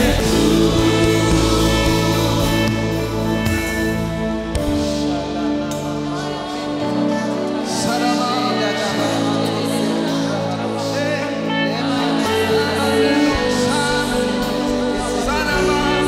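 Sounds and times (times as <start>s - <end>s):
band with keyboard guitars drums: 0.0s - 8.6s
singers singing gospel: 0.0s - 16.0s.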